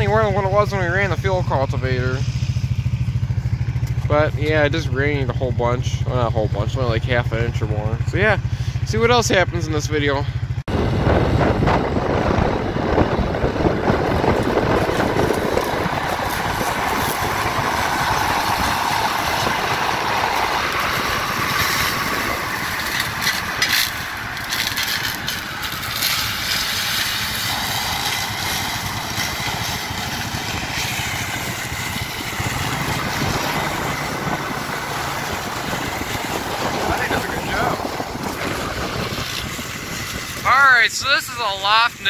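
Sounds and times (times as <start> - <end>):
tractor diesel engine rumbling: 0.0 - 42.0
shredder rotor running: 10.7 - 40.6.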